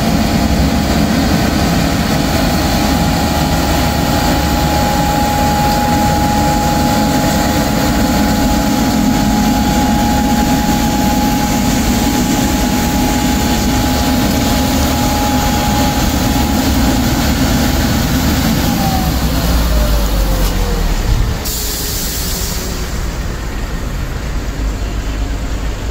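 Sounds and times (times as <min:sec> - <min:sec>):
sweeper truck engine whine: 0:00.0 - 0:25.9
brief hiss: 0:21.3 - 0:23.1.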